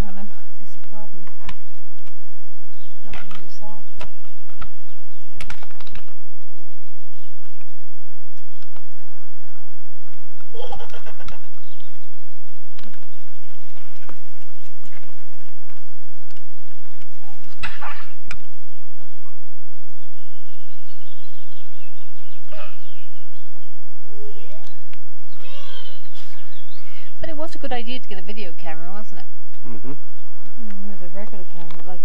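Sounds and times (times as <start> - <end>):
child squealing: 25.4 - 26.4.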